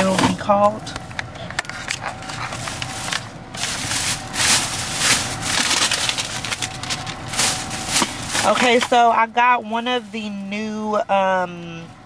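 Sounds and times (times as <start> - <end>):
plastic bag rustling: 1.7 - 10.8.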